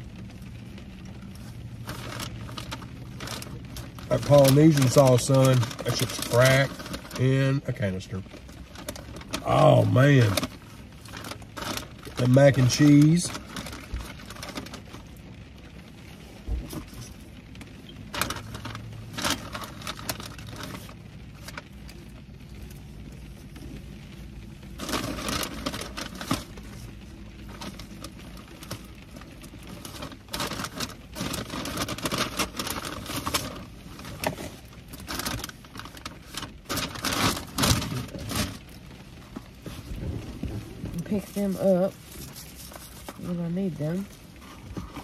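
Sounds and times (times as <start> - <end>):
paper bag rustling and crinkling: 0.0 - 45.0.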